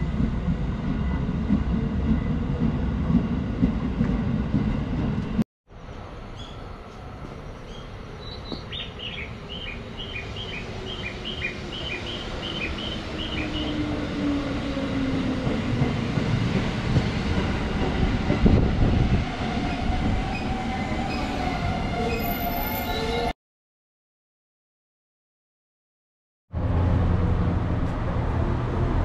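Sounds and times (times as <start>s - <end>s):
train wheel rumble: 11.6s - 20.6s.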